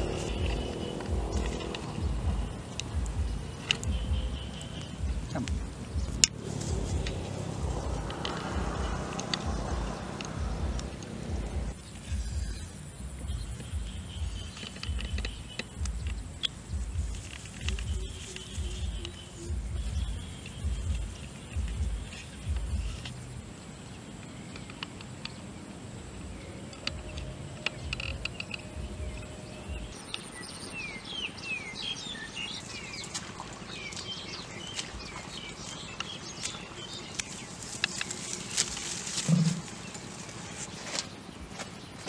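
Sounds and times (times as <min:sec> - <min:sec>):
footsteps on grass: 0:00.0 - 0:12.7, 0:13.3 - 0:23.3, 0:32.5 - 0:42.0
birds chirping: 0:00.0 - 0:42.0
clicks and rustles: 0:13.5 - 0:19.3, 0:35.6 - 0:41.7.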